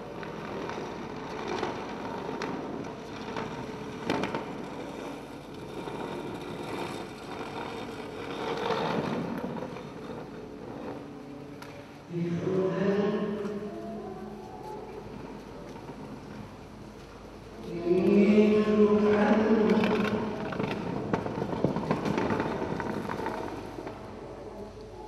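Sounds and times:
concrete block scraping on concrete: 0:00.3 - 0:11.2.

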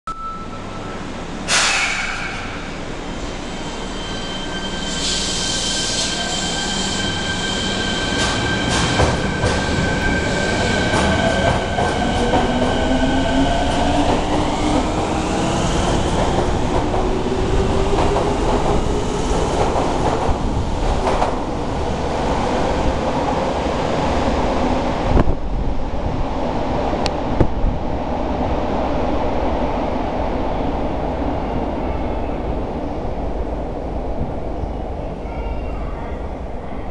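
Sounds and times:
train brake hiss: 0:01.5 - 0:02.8, 0:04.2 - 0:07.9.

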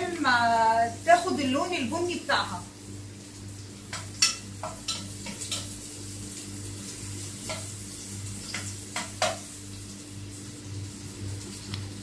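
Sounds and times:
onion sizzling in hot oil: 0:00.0 - 0:12.0
spoon knocking against pot: 0:03.9 - 0:05.7, 0:08.5 - 0:09.4.

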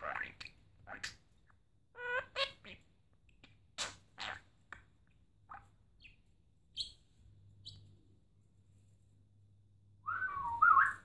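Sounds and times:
budgerigar chirping: 0:05.5 - 0:07.0, 0:07.6 - 0:07.8.

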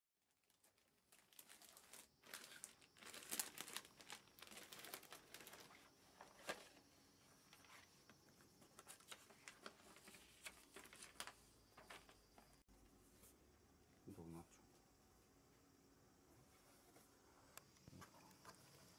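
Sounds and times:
plastic packaging crinkling: 0:00.2 - 0:06.9, 0:08.6 - 0:12.3.

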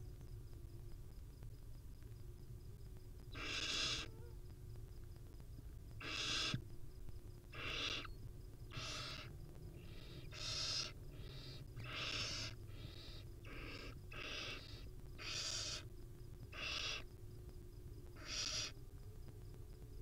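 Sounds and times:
low steady hum: 0:00.0 - 0:20.0
owl chicks hissing begging calls: 0:03.4 - 0:04.1, 0:06.0 - 0:06.6, 0:07.5 - 0:08.1, 0:08.7 - 0:15.9, 0:16.5 - 0:17.0, 0:18.2 - 0:18.8.

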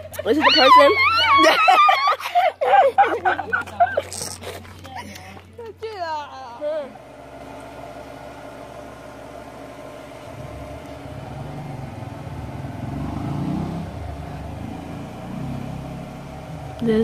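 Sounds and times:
steady hum: 0:00.0 - 0:17.0
vehicle engine passing: 0:06.6 - 0:17.0.

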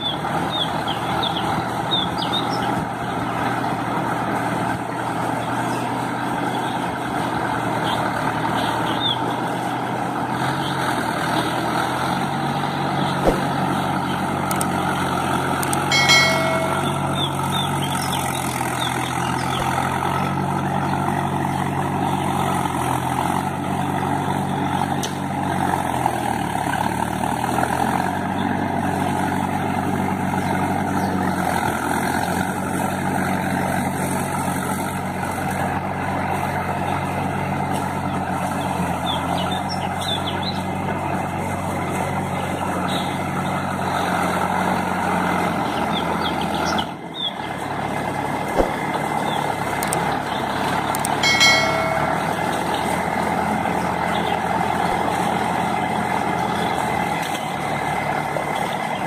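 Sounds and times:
tractor diesel engine running: 0:00.0 - 0:59.0
short high-pitched tone: 0:15.9 - 0:17.3, 0:51.2 - 0:52.7.

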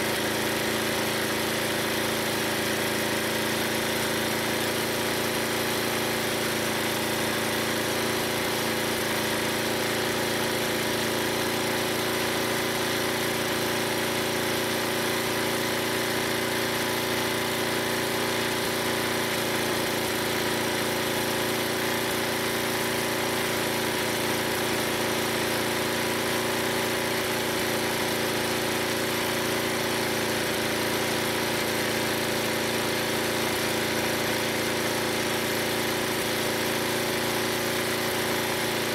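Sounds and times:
gas engine running steadily: 0:00.0 - 0:38.9.

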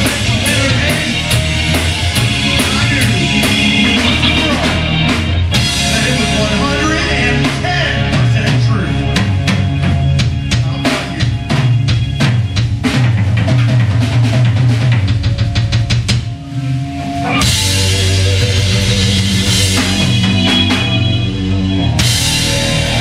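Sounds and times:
live rock band playing: 0:00.0 - 0:23.0.

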